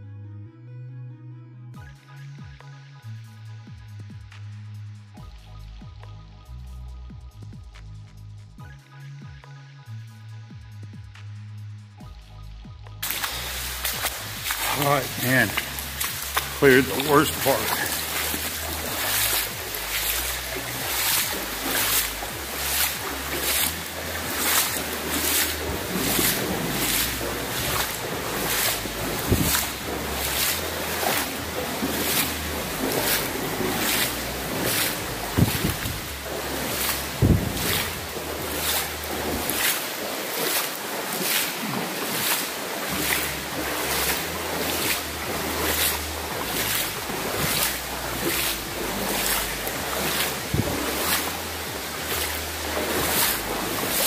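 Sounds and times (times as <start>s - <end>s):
footsteps splashing in water: 13.0s - 54.0s.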